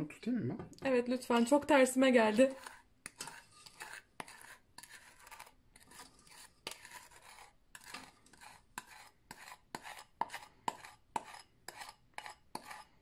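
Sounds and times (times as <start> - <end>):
wooden spoon scraping bowl: 1.2 - 13.0.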